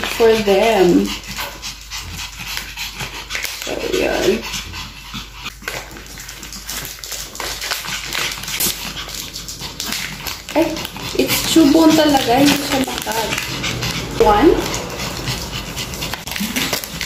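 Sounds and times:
dogs panting: 0.0s - 17.0s
dogs whining: 7.7s - 17.0s.

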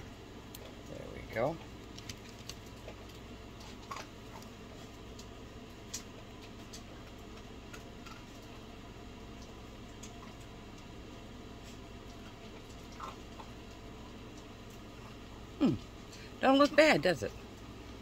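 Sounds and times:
steady low hum: 0.0s - 18.0s
faint clicks and ticks: 0.4s - 8.7s.

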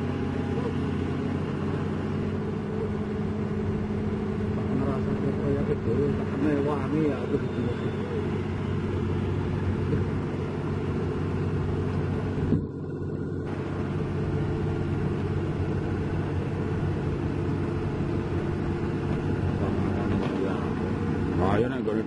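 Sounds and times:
diesel engine droning: 0.0s - 22.0s.

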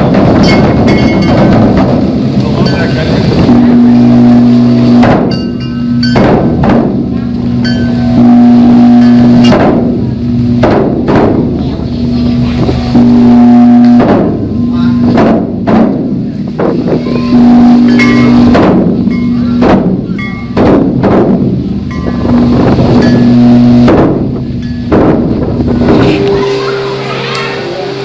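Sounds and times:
bronze bell struck: 0.2s - 2.0s, 2.6s - 10.6s, 17.3s - 21.0s, 21.6s - 28.0s.

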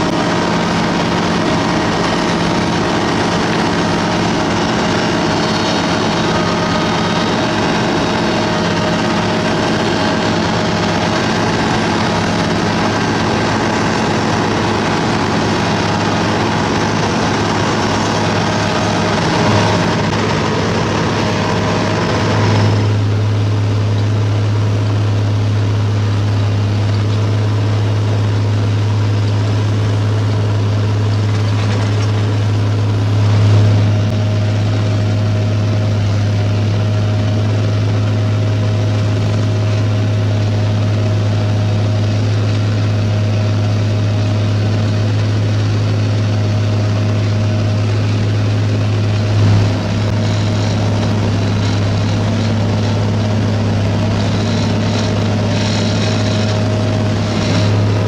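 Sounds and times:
diesel engine running: 0.0s - 58.0s
harsh hiss and rattle: 46.8s - 58.0s.

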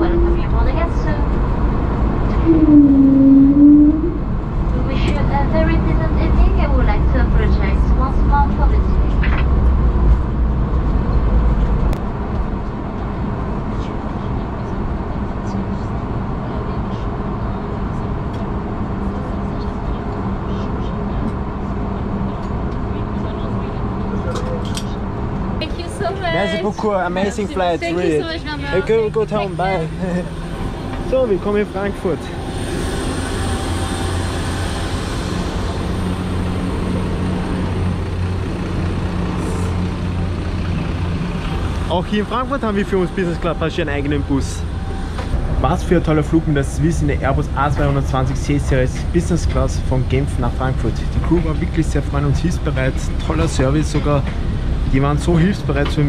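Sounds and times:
deep rumble: 0.0s - 56.0s
jet engines idling: 0.0s - 56.0s
thin high whine: 27.9s - 38.2s.

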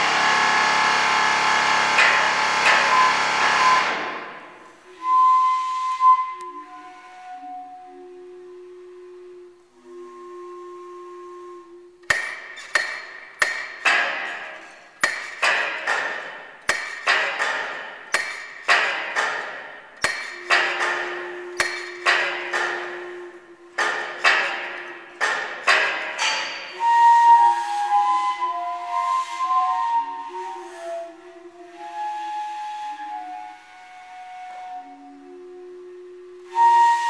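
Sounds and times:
mechanical hammers striking fixtures: 0.0s - 4.6s, 12.0s - 26.8s
whistle-like pipe tones: 2.8s - 13.2s, 20.0s - 37.0s.

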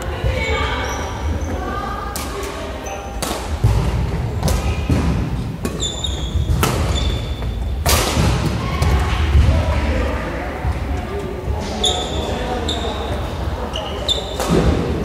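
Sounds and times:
rackets striking shuttlecock: 2.1s - 8.5s
shoe squeaks on court floor: 5.7s - 7.8s, 11.8s - 14.5s.

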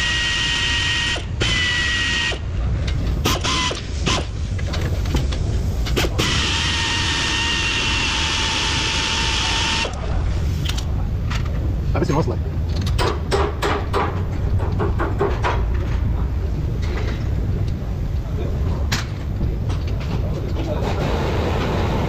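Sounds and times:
power ratchet whine: 6.1s - 10.0s.

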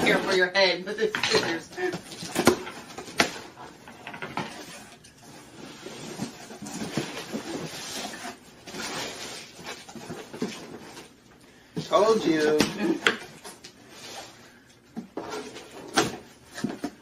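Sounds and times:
cardboard scraping and rustling: 1.7s - 11.2s, 15.0s - 17.0s.

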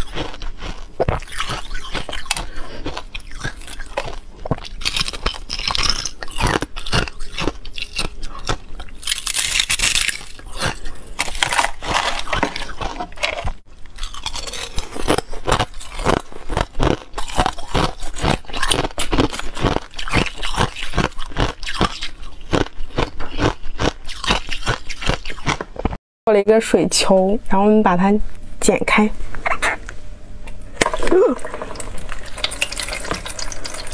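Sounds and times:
ice crunched between teeth: 0.0s - 25.8s.

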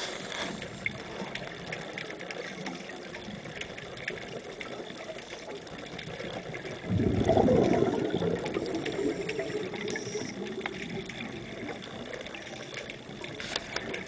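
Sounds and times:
underwater exhaust bubbles rushing: 0.0s - 14.0s
faint clicks: 8.8s - 14.0s.

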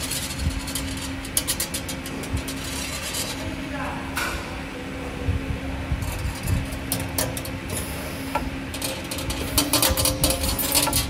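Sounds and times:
machine hum: 0.0s - 11.0s
wire bending clicks and clacks: 6.0s - 11.0s.

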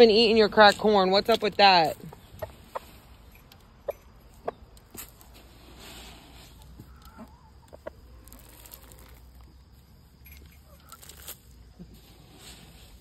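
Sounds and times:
chickens clucking: 1.7s - 9.0s.

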